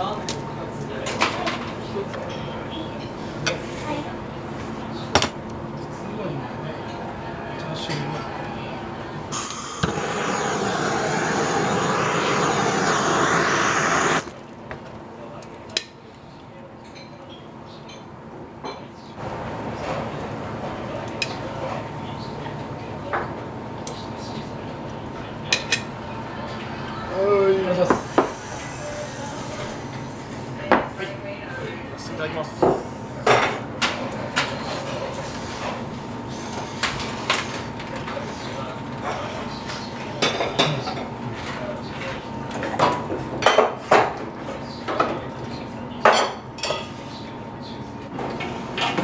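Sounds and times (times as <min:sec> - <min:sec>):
faint voices: 0:06.7 - 0:14.3.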